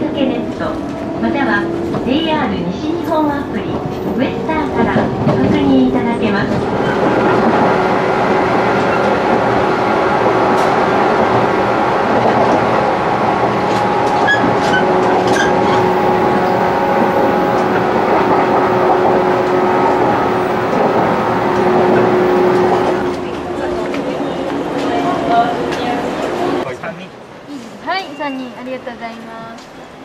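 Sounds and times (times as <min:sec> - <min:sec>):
train rumbling: 0:00.0 - 0:30.0.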